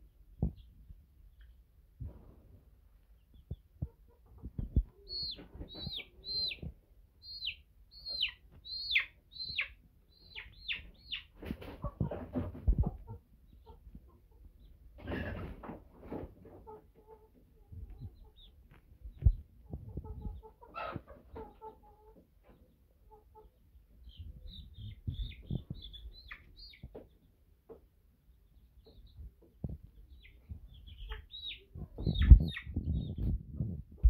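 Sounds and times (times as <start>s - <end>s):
chicks chirping and clucking: 3.0s - 34.0s
rustling from handling a bird: 11.3s - 12.8s.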